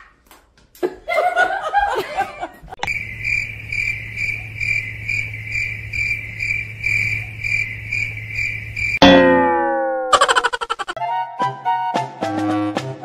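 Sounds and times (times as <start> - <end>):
cricket chirping: 2.8 - 9.0, 10.2 - 11.0.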